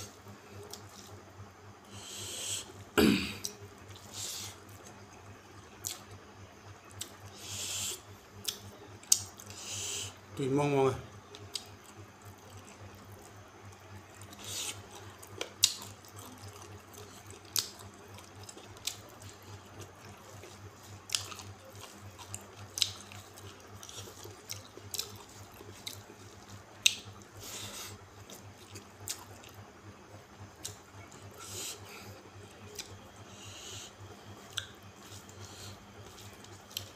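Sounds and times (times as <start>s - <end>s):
faint low hum: 0.0s - 36.9s
mouth smacks and chewing: 5.8s - 6.2s, 8.4s - 9.6s, 11.3s - 29.8s, 30.5s - 31.8s, 32.7s - 33.6s, 34.4s - 36.9s.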